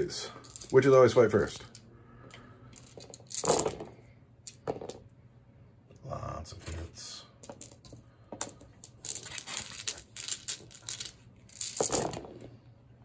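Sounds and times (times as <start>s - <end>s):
dice rattling on table: 0.2s - 1.9s, 2.7s - 5.0s, 7.4s - 12.5s.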